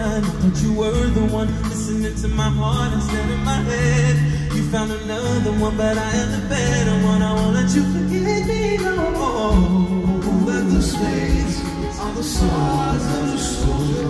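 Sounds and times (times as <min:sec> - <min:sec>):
live band amplified music: 0:00.0 - 0:14.0
male lead vocal: 0:00.0 - 0:14.0
held bass note: 0:02.2 - 0:14.0
drum hits: 0:08.5 - 0:14.0.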